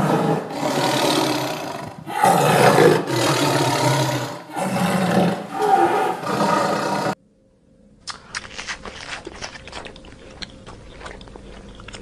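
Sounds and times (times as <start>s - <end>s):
tiger roaring: 0.0s - 7.2s.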